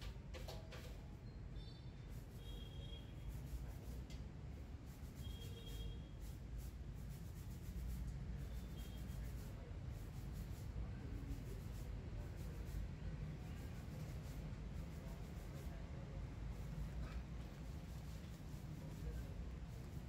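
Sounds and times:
faint high-pitched chirps: 1.2 - 3.0
faint rubbing and scratching: 2.0 - 20.0.

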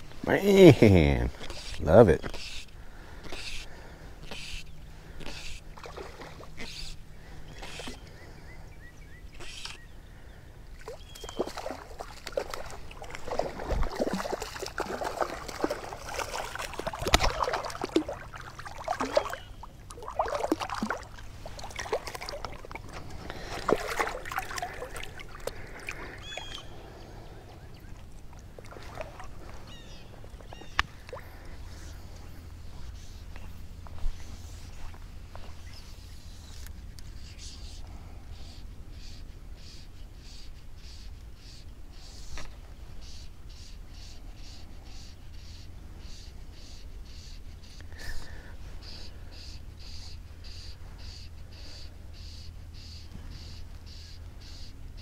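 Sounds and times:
water sloshing: 1.3 - 8.0, 10.8 - 35.8
fish splashing in water: 4.3 - 6.8, 10.8 - 27.0, 28.0 - 30.0.

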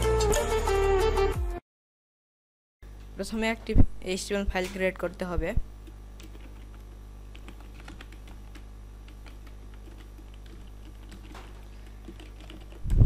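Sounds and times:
steady low hum: 2.8 - 13.0.

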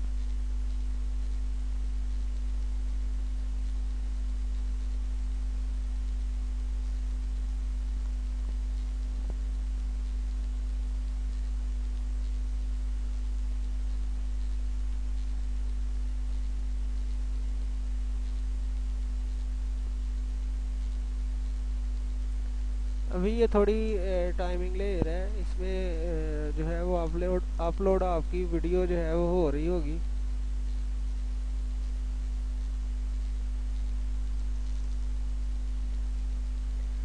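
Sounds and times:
light hiss: 0.0 - 37.0
low electrical hum: 0.0 - 37.0
faint click: 32.6 - 35.1.

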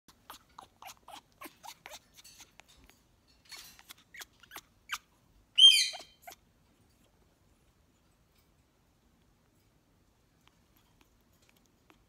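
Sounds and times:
parrot squawking: 3.6 - 6.4.

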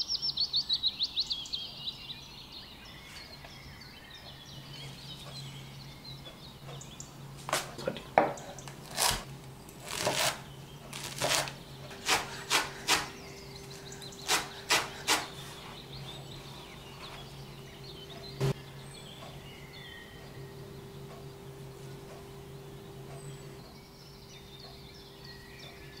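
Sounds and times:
steady low hum: 0.0 - 26.0
knife chopping on wooden board: 11.0 - 13.2, 14.2 - 15.4.

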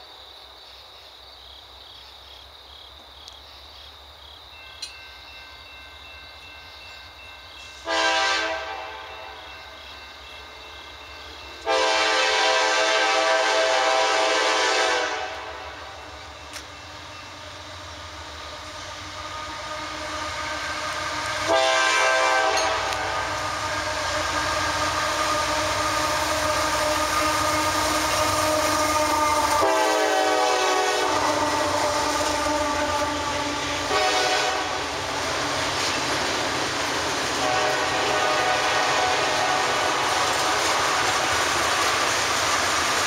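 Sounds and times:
train rumble: 3.9 - 43.0
locomotive air horn blasts: 7.8 - 9.4, 11.6 - 16.1, 18.7 - 34.9, 37.4 - 41.4.

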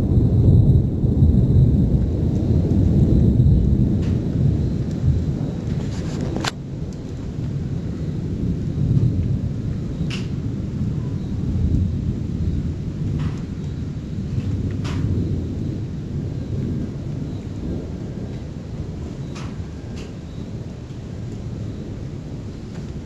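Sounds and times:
thunder rumbling: 0.0 - 23.0
brief crackle: 5.7 - 6.6.

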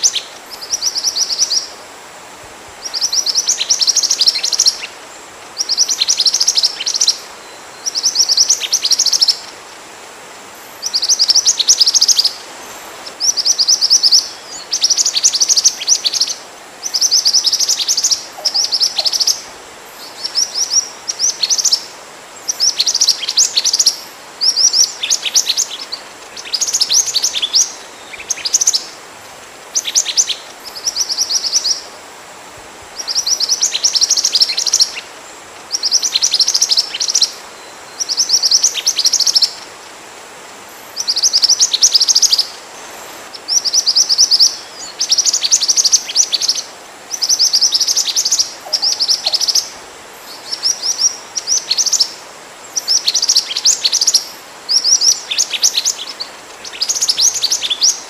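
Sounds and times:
bird calls rapid high chirps: 0.0 - 1.7, 13.0 - 29.0, 33.0 - 39.7, 40.8 - 58.0
faint steady hiss: 0.0 - 58.0.

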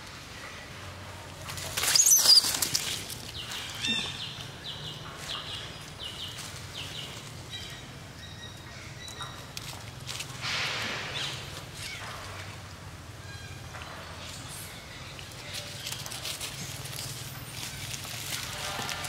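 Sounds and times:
monkey squealing: 1.8 - 2.6.

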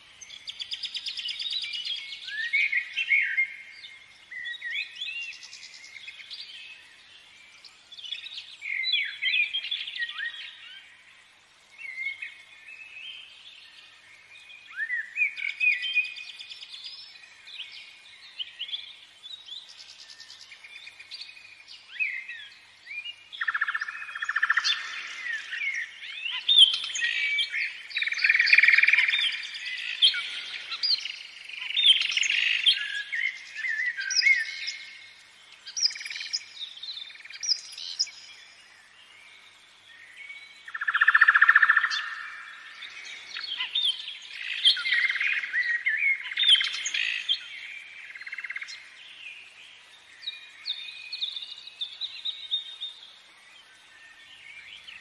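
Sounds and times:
birds chirping and singing: 11.7 - 55.0.

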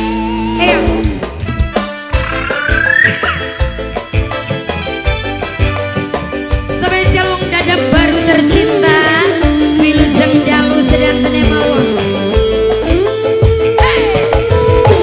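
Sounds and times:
electric guitars: 0.0 - 15.0
steady drum beat: 1.0 - 15.0
gliding melody line: 2.2 - 4.5.

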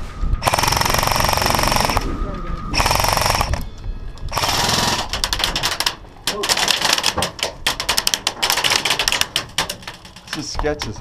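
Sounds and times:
airsoft rifle full-auto burst: 0.4 - 2.0, 2.8 - 3.6, 4.3 - 5.8
clicks and rattles: 4.3 - 11.0.

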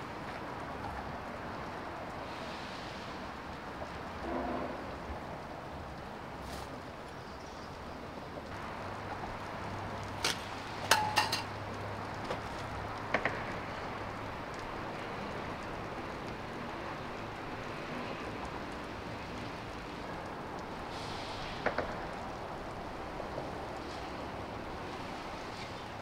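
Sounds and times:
outdoor background hiss: 0.0 - 26.0
metallic clink: 10.9 - 11.5.

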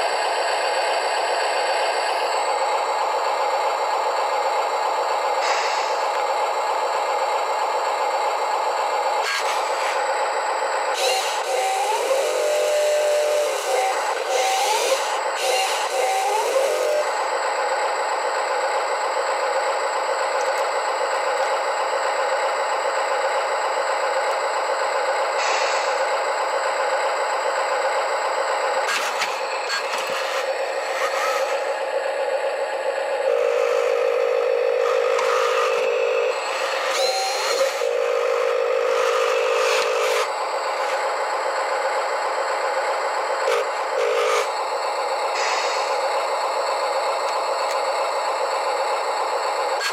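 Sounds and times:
toy motor whining hum: 4.7 - 49.9
loud buzzing tone: 10.9 - 17.4, 28.8 - 41.1.

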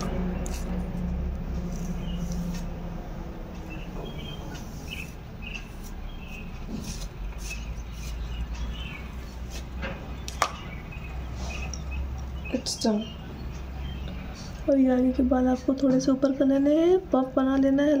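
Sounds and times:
low steady hum: 0.0 - 18.0
comb brushing through hair: 1.6 - 2.8, 4.5 - 8.4.

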